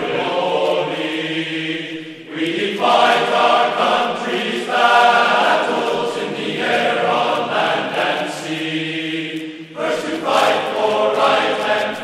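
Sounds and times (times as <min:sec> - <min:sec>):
choir singing held chords: 0:00.0 - 0:12.0.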